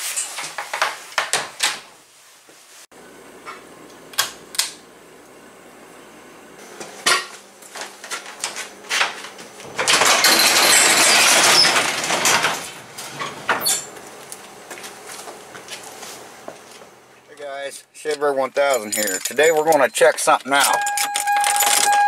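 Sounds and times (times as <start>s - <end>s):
garage door rattling in tracks: 9.6s - 13.9s.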